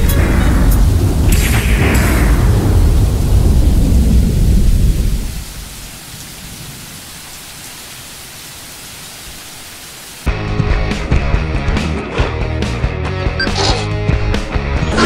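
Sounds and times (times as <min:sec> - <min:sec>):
thunder rumbling: 0:00.0 - 0:08.1
rain hissing: 0:00.0 - 0:10.3.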